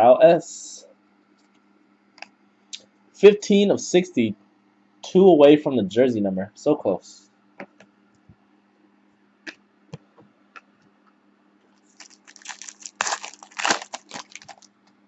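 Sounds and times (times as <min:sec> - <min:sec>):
foil wrapper tearing and crinkling: 0:11.8 - 0:14.7.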